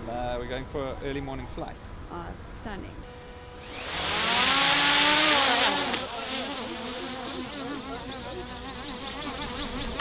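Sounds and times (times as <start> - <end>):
drone propellers buzzing: 3.1 - 10.0.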